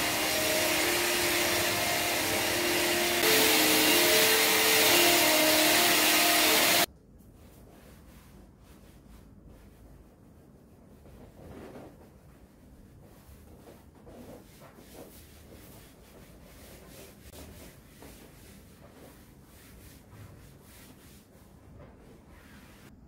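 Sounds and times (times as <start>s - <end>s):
cloth rubbing on foam mat: 7.3s - 23.0s.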